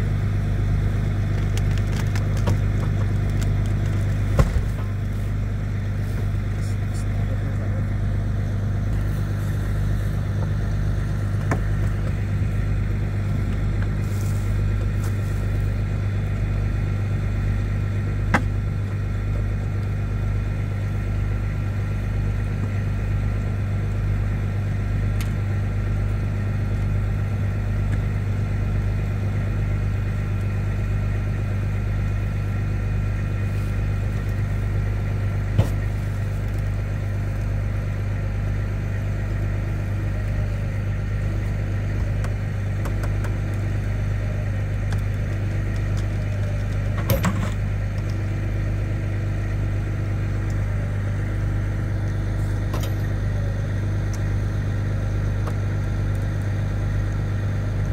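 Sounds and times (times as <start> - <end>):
diesel engine idling: 0.0 - 57.9.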